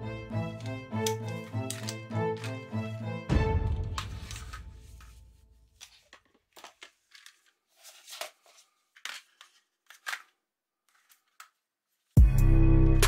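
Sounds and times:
plastic magazines clicking: 0:00.5 - 0:02.8, 0:03.9 - 0:05.2, 0:05.8 - 0:11.7.

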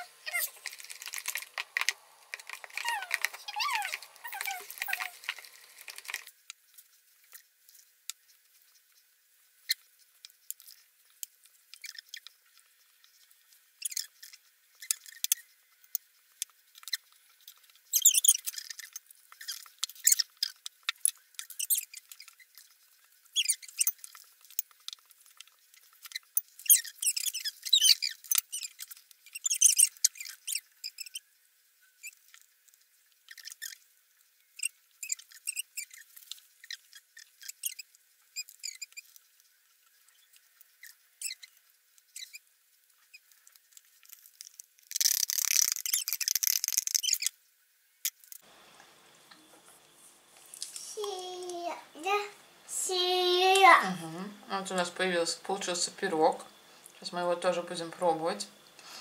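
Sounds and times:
utensils scratching and tapping dough: 0:00.2 - 0:07.0.

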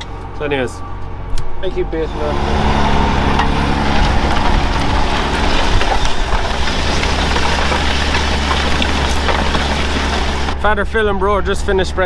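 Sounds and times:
tractor engine under load: 0:02.1 - 0:10.6.

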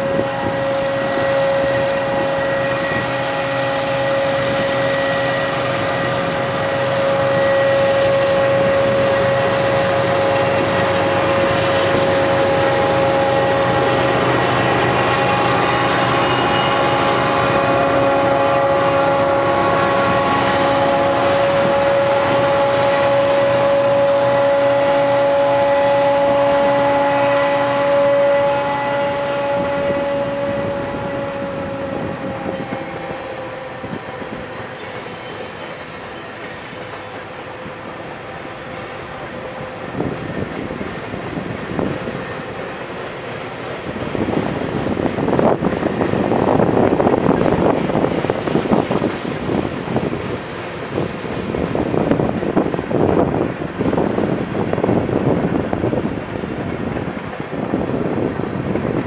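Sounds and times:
diesel locomotive engines whining: 0:00.0 - 0:59.0
faint wheel squeal: 0:32.5 - 0:37.2.

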